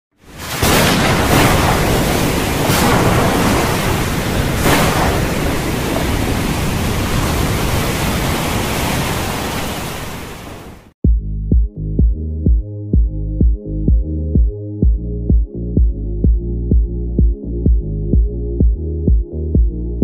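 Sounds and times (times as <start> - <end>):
loud steady rushing noise: 0.5 - 9.5.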